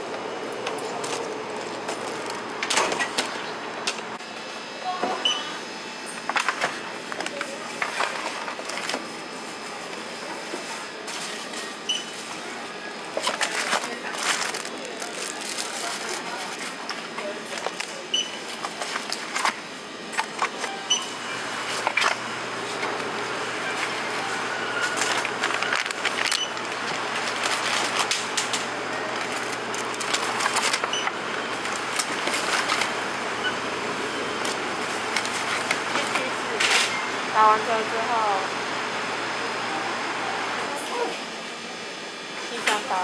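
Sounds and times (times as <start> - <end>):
steady background noise: 0.0 - 43.0
plastic packaging handled: 12.9 - 19.6, 24.8 - 28.4.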